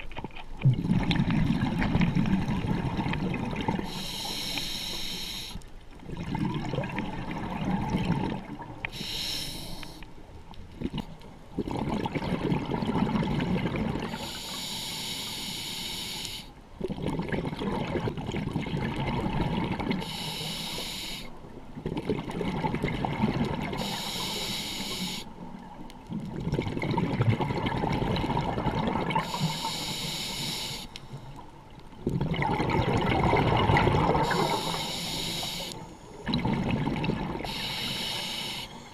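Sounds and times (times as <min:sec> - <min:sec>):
exhaled bubbles gurgling: 0:00.0 - 0:04.6, 0:05.9 - 0:09.8, 0:10.7 - 0:14.5, 0:16.8 - 0:20.5, 0:21.4 - 0:38.9
regulator inhale hiss: 0:03.8 - 0:05.6, 0:08.9 - 0:10.0, 0:14.2 - 0:16.6, 0:20.0 - 0:21.4, 0:23.8 - 0:25.4, 0:29.2 - 0:31.4, 0:34.2 - 0:36.2, 0:37.4 - 0:38.9.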